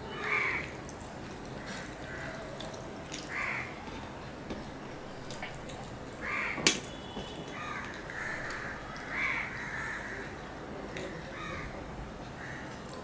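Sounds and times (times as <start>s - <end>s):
crows cawing: 0.2s - 0.7s, 1.6s - 2.6s, 3.2s - 3.8s, 6.2s - 6.7s, 7.6s - 10.3s, 11.3s - 11.8s, 12.4s - 12.8s.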